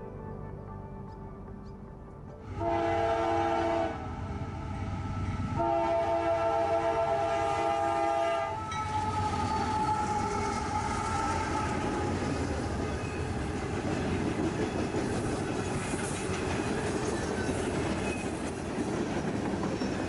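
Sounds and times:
train engine rumble and rolling: 2.4s - 20.0s
locomotive air horn blasts: 2.5s - 4.3s, 5.0s - 12.0s.

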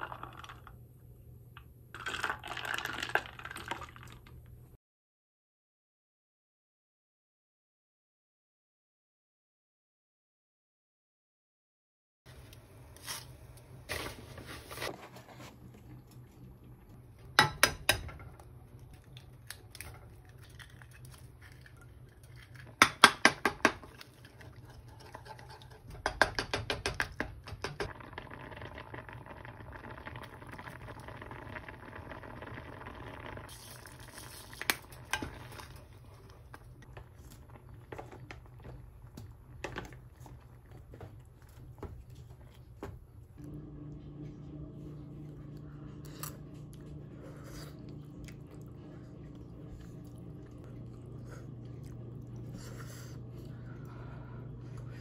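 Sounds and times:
porridge bubbling in saucepan: 0.0s - 0.8s, 1.9s - 4.5s, 12.3s - 43.2s
low steady hum: 12.3s - 26.4s, 27.0s - 55.0s
wooden spoon clacking on pan: 25.9s - 27.9s.

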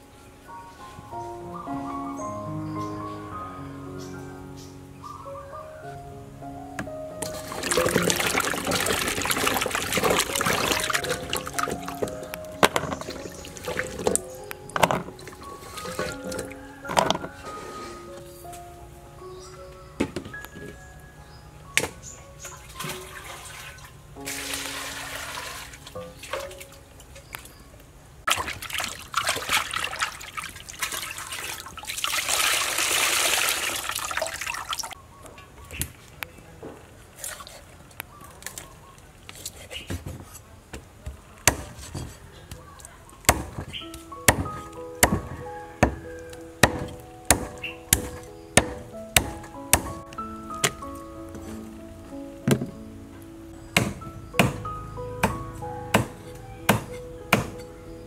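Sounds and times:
water splashing and trickling: 7.2s - 17.6s, 21.8s - 35.0s, 36.8s - 39.9s, 41.2s - 52.9s
water streaming into basin: 7.3s - 14.3s, 22.8s - 26.7s, 28.3s - 35.0s.

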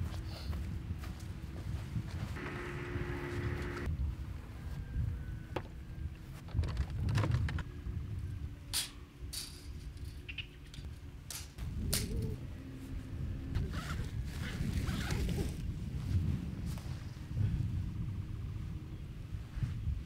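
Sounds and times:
low steady rumble: 0.0s - 14.7s.

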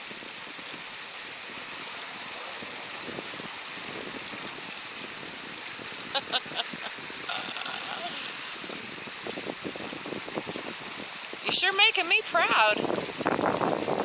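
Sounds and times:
running water: 0.0s - 14.0s
short voice sounds: 7.3s - 8.5s.

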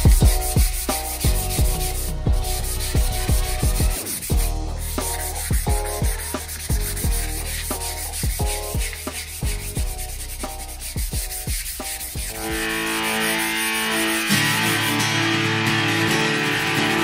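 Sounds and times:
background music with kick drum: 0.0s - 13.4s
sandpaper rubbing on wood: 0.0s - 15.0s.

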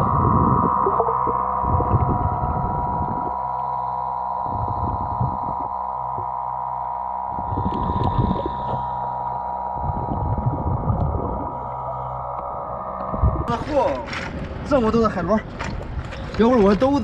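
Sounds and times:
muffled underwater hum: 0.0s - 17.0s
low knocks and crackles: 9.8s - 17.0s.

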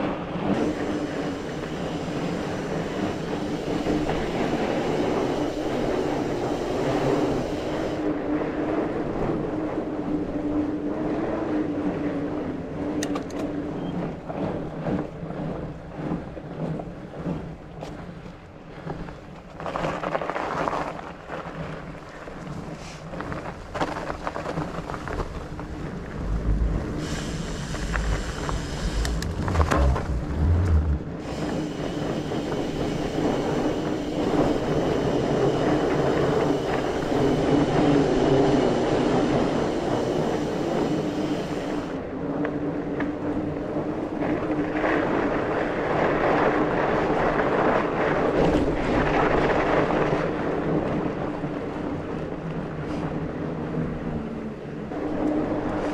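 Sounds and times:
bike tyres and drivetrain rattling: 0.0s - 55.9s
wind on microphone: 0.0s - 55.9s.

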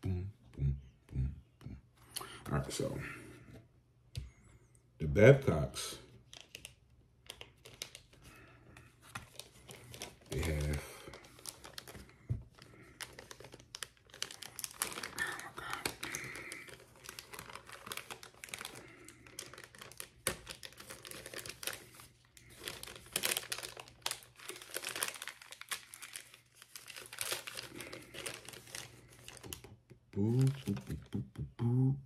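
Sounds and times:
plastic packaging crinkling: 6.2s - 29.8s.

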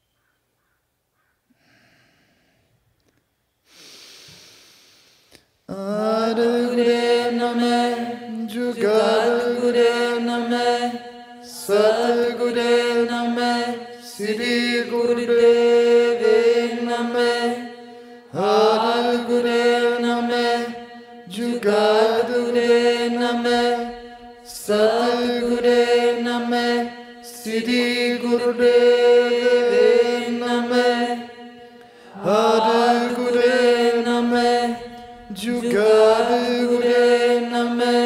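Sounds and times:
drawn breath: 1.5s - 2.8s, 3.6s - 5.6s, 17.8s - 18.3s, 31.5s - 32.2s
man and woman chanting: 5.7s - 38.0s.

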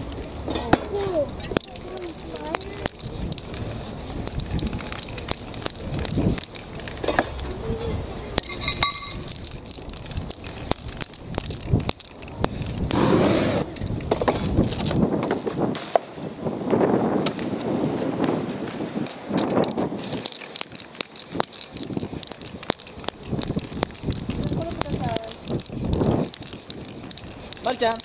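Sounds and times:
spray paint can hissing: 1.1s - 7.1s, 7.8s - 15.0s, 19.3s - 28.0s
paper rustling and crackling: 18.7s - 28.0s.

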